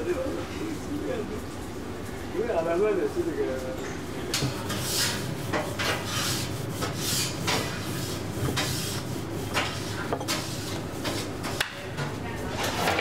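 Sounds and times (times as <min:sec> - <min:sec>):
rolling pin rubbing over dough: 0:04.5 - 0:11.6.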